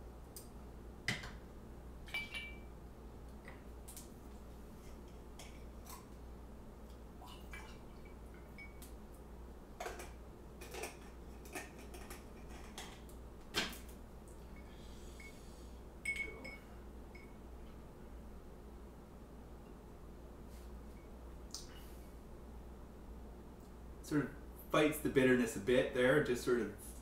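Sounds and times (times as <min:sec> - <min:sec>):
faint steady hum: 0:00.0 - 0:27.0
glass and bottle clinks: 0:02.1 - 0:02.7.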